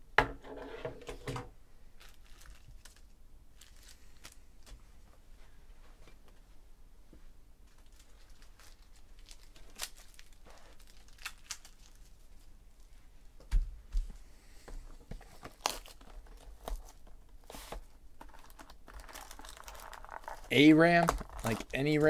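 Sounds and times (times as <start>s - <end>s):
shrink-wrap crinkling and tearing: 2.0s - 4.7s, 7.7s - 12.5s, 15.2s - 22.0s.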